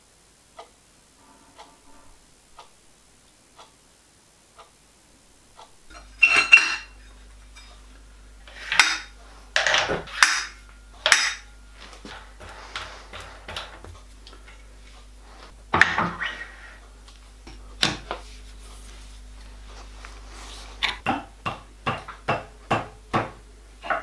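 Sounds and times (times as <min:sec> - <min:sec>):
metal scraping: 0:01.1 - 0:02.4
steel parts clanking: 0:05.9 - 0:07.8, 0:08.4 - 0:11.5.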